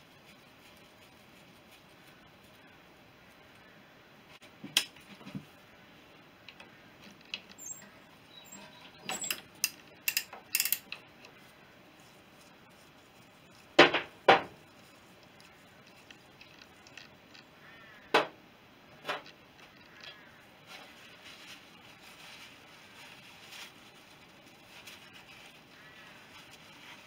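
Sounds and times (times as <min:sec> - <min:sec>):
metal parts clinking: 0:09.0 - 0:11.0.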